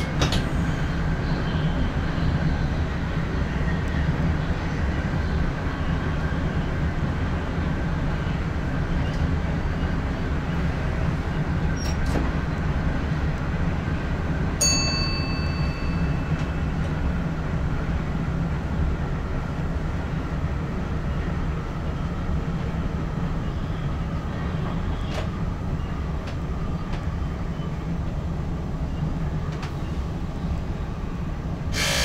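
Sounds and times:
train low rumble: 0:00.0 - 0:32.0
bright metallic ding: 0:14.6 - 0:16.2.

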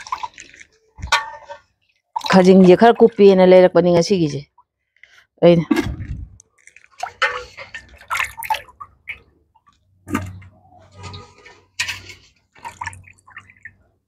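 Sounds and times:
water splashing and dripping: 0:00.0 - 0:03.5, 0:05.7 - 0:14.0.

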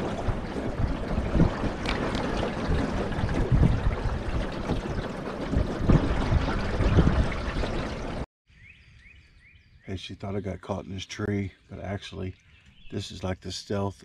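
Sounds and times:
water splashing against boat hull: 0:00.0 - 0:08.3
wind buffeting microphone: 0:00.0 - 0:09.8.

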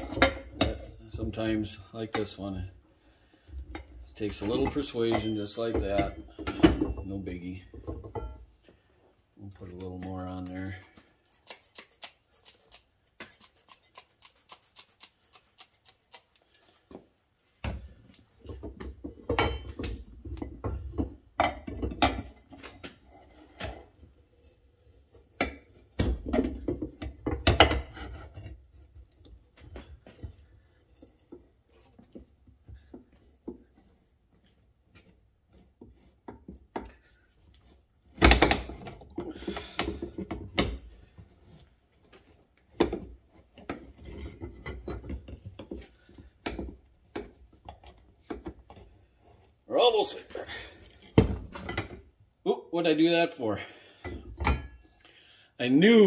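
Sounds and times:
knocks and clinks of handling: 0:03.7 - 0:08.5.

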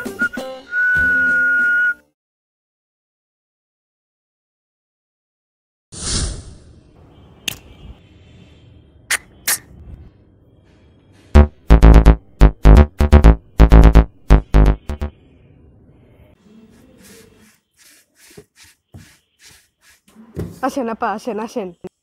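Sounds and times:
synthesizer jingle: 0:11.4 - 0:15.1.

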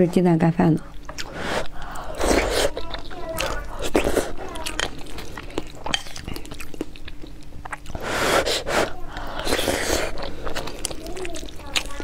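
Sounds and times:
chewing and lip-smacking: 0:00.8 - 0:12.0
breathy slurping noises: 0:01.2 - 0:04.6, 0:07.9 - 0:12.0.

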